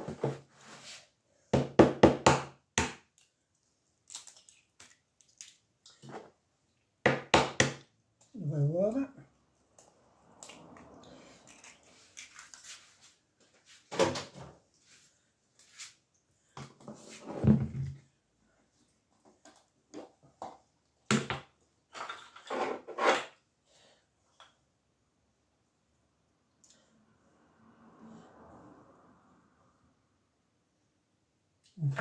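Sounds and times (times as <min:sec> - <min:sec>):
soft rustle of mashed potato: 0:11.6 - 0:13.9, 0:14.7 - 0:16.2.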